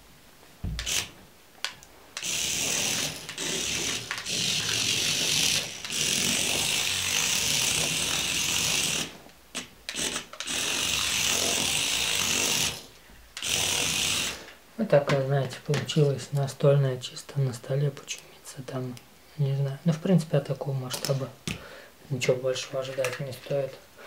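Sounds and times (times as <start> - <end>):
toy car motor whining: 0.8 - 1.1, 2.2 - 14.6.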